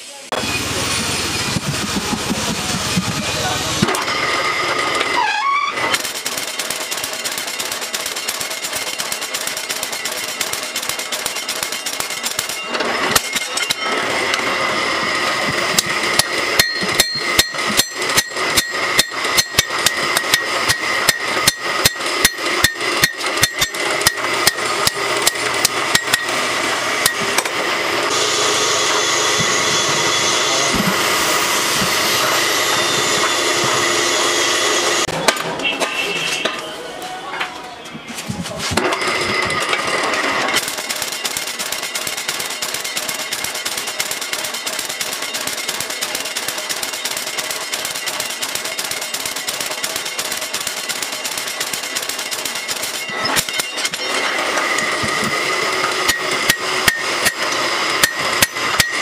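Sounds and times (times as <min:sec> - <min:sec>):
steady machine noise: 0:00.0 - 0:37.0, 0:38.3 - 0:59.0
power hammer pounding steel: 0:00.3 - 0:36.6, 0:38.6 - 0:59.0
hand hammer ringing on anvil: 0:15.8 - 0:26.4, 0:56.0 - 0:59.0.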